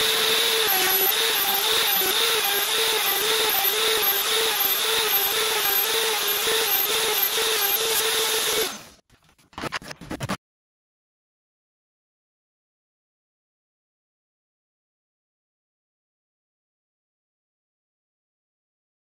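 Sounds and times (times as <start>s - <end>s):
electric router whining: 0.0s - 9.0s.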